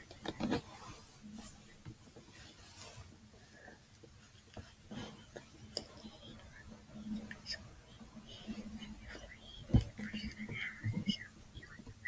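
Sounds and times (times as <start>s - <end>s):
rustling of hair and headband: 0.2s - 6.1s.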